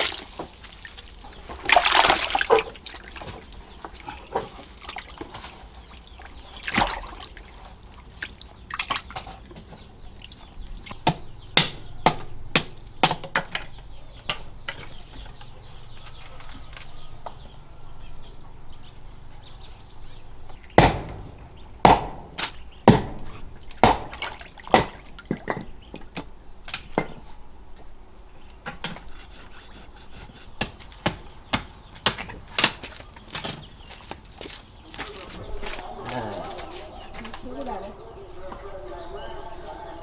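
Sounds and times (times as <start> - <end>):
chopping strokes on wood: 20.8 - 25.6, 28.6 - 33.6.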